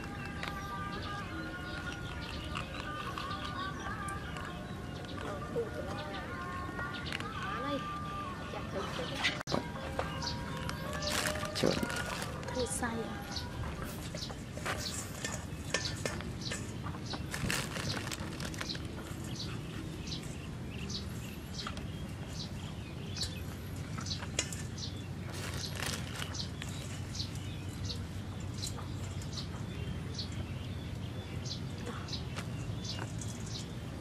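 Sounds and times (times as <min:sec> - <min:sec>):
birds chirping: 0:00.0 - 0:34.0
salt grains crackling on fish: 0:10.7 - 0:13.0, 0:14.7 - 0:19.6, 0:24.4 - 0:27.4.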